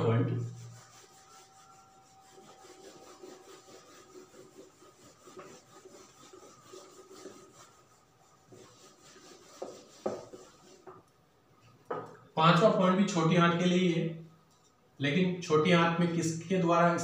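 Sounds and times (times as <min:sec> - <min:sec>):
duster rubbing on whiteboard: 0:00.0 - 0:11.1.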